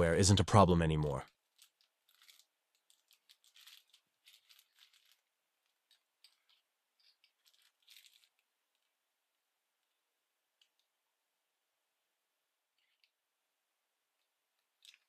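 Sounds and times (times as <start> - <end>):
plastic bag crinkling: 1.2 - 9.0, 14.6 - 15.0.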